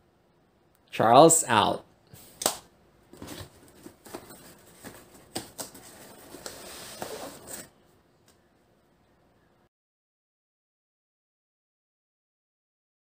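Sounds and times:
cardboard scraping and rustling: 0:03.1 - 0:07.7.

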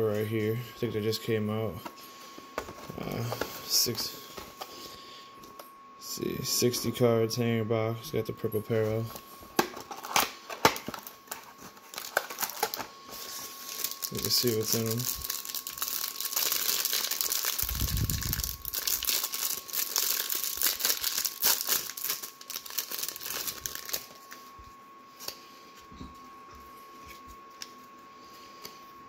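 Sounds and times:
plastic wrapper crinkling and tearing: 0:09.6 - 0:24.4.

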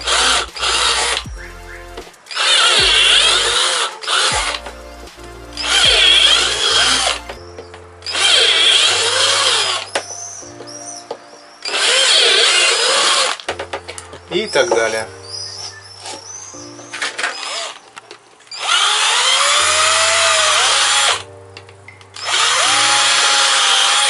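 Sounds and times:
cordless drill boring plastic: 0:00.0 - 0:01.2, 0:02.3 - 0:04.6, 0:05.6 - 0:07.3, 0:08.0 - 0:09.8, 0:11.6 - 0:13.4, 0:18.5 - 0:21.2, 0:22.2 - 0:24.0
background music: 0:00.0 - 0:24.0.

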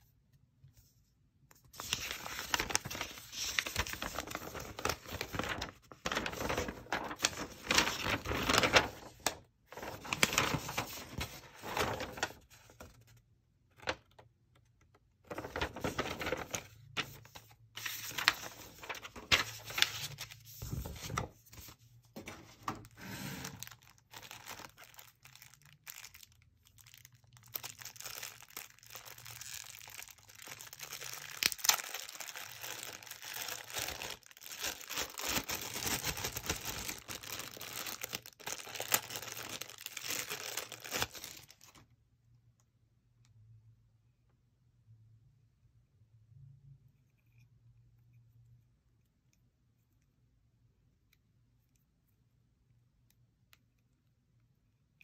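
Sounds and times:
plastic bags crinkling and tearing: 0:01.8 - 0:12.4, 0:22.8 - 0:41.8.

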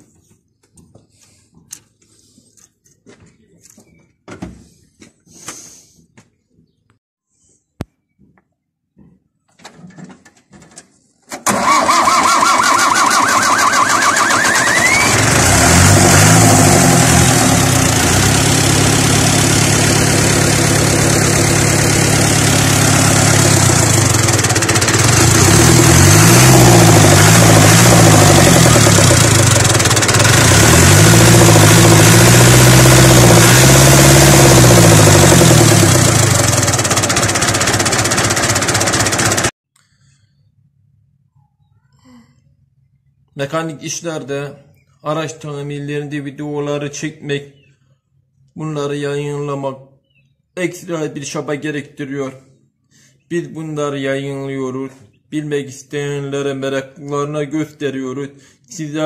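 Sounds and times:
engine cranking whine: 0:11.3 - 0:39.5
diesel engine revving: 0:11.5 - 0:39.5.

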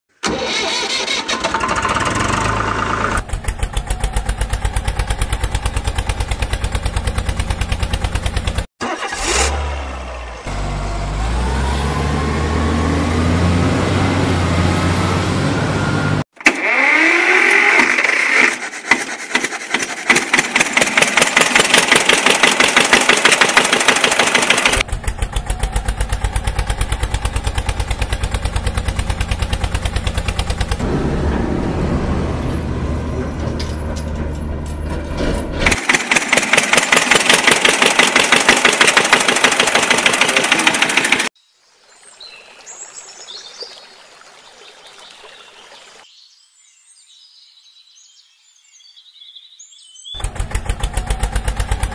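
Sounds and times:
engine chugging: 0:00.2 - 0:16.2, 0:18.5 - 0:41.3, 0:50.2 - 0:51.9.

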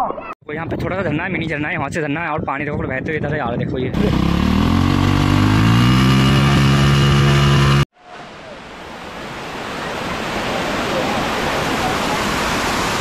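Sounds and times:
vehicle engine revving: 0:04.0 - 0:07.9
water rushing: 0:08.6 - 0:13.0.

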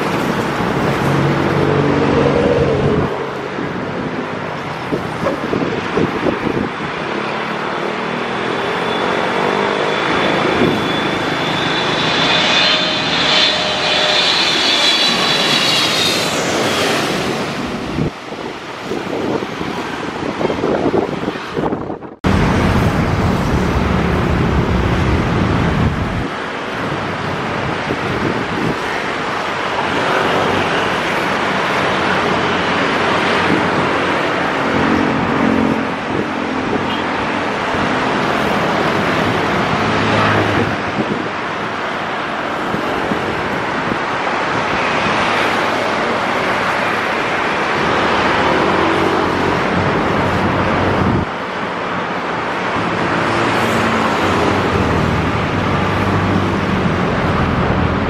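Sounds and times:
road traffic noise: 0:00.0 - 0:58.0
deep rumble: 0:22.2 - 0:26.3.

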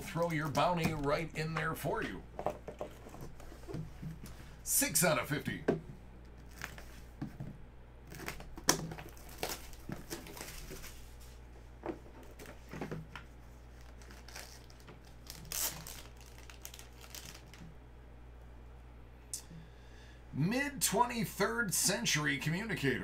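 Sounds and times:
shrink wrap crinkling and tearing: 0:08.1 - 0:11.2, 0:13.7 - 0:17.7.

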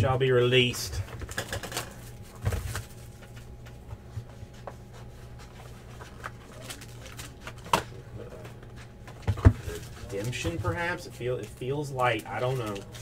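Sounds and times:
low electrical hum: 0:00.0 - 0:13.0
foil wrapper crinkling: 0:06.0 - 0:07.6, 0:09.7 - 0:13.0.

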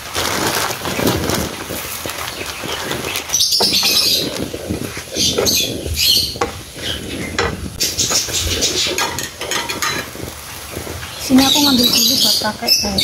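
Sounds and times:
wooden spatula scraping a pan: 0:00.1 - 0:12.7
birds chirping: 0:00.6 - 0:13.0
sauce simmering in a pan: 0:00.8 - 0:13.0.

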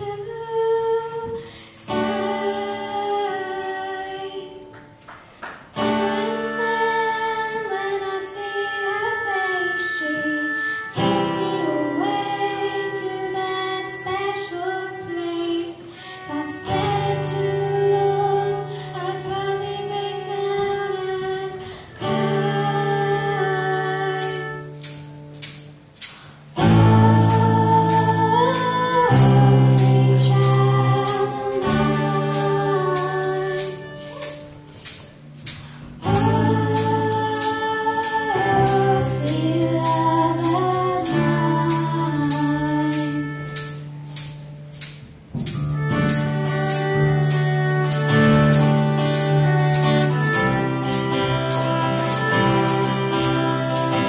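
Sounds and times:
girls singing: 0:00.0 - 0:04.8, 0:05.8 - 0:24.4, 0:26.6 - 0:35.0, 0:36.0 - 0:43.3
tambourine beat: 0:24.0 - 0:54.0
string band playing: 0:26.6 - 0:42.5, 0:45.4 - 0:54.0.

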